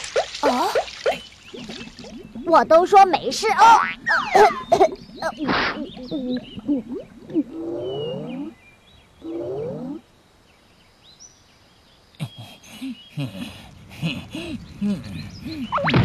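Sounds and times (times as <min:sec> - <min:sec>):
quick wavering vocal sounds: 0:02.5 - 0:08.6, 0:12.2 - 0:16.0
cartoon voice moaning: 0:12.2 - 0:15.9.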